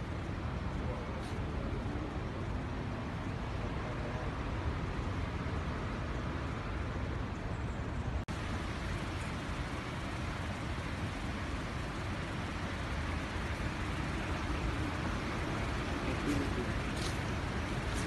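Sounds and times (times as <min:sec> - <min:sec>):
outdoor rushing noise: 0:08.1 - 0:18.0.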